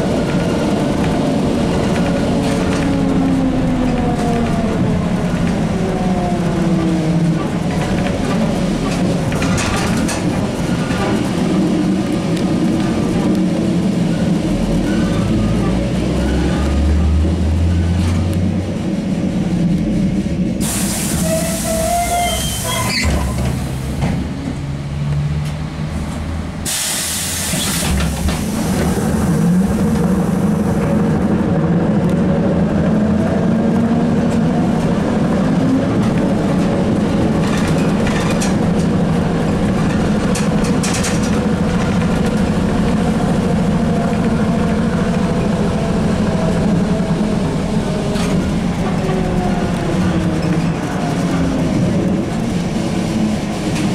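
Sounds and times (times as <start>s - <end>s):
trolleybus rumble: 0.0s - 53.9s
hiss bursts: 20.6s - 22.9s, 26.6s - 28.6s.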